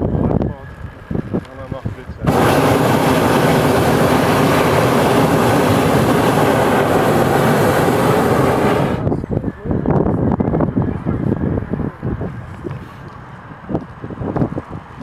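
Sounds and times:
propane burner roaring: 2.2s - 9.2s.

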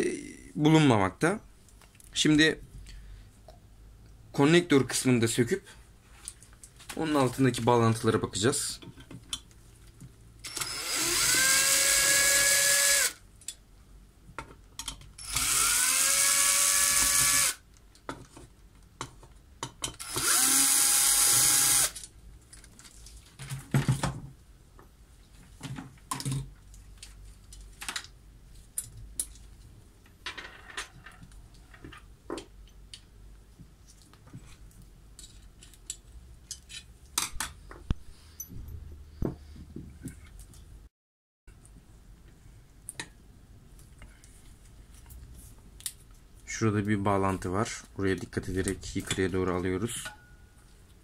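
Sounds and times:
cordless drill whining: 10.4s - 13.2s, 15.2s - 17.6s, 20.0s - 22.0s.

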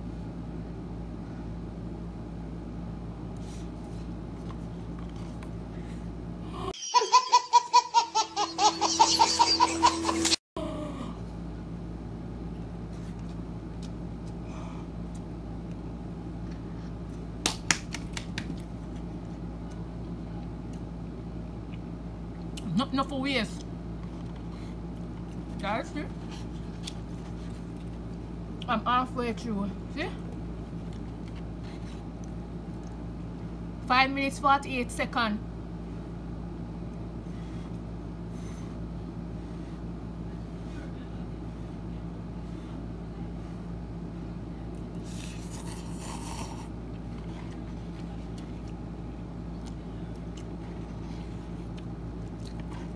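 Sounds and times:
steady low hum: 0.0s - 52.9s
woman eating noodles: 45.0s - 48.5s.

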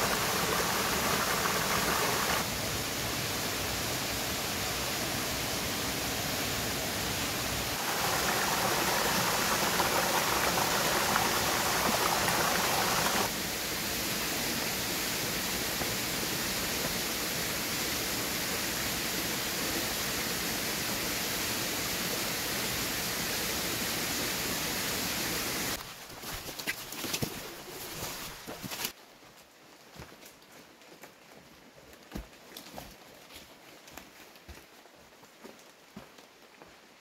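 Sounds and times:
flowing stream water: 0.0s - 2.5s, 7.7s - 13.4s.

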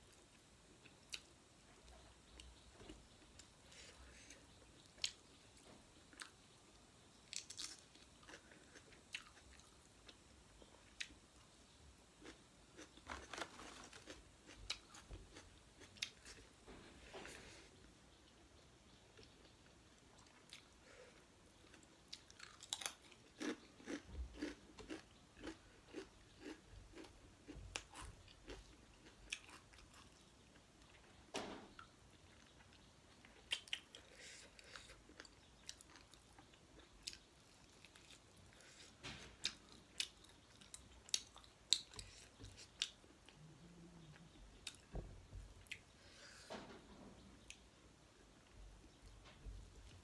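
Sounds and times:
crisp crunching and chewing: 7.3s - 10.2s, 12.2s - 16.4s, 21.6s - 30.5s.

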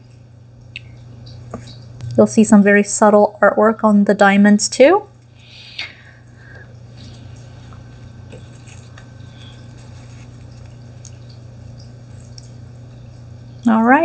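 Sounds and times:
steady low hum: 0.0s - 14.0s
playing cards rustling: 7.1s - 11.2s.

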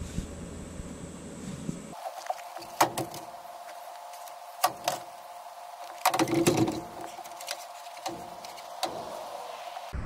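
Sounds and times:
faint steady hum: 0.0s - 10.0s
metal knocks and clanks: 6.0s - 9.1s.

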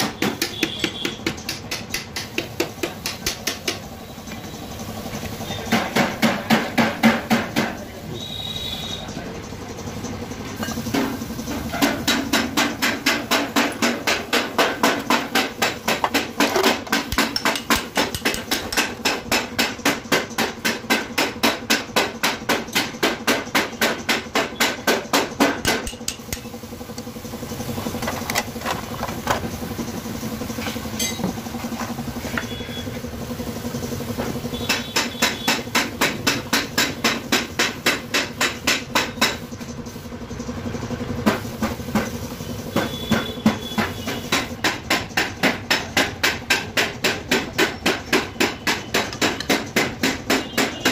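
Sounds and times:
rapid hammer blows: 10.9s - 26.8s, 41.2s - 50.9s.

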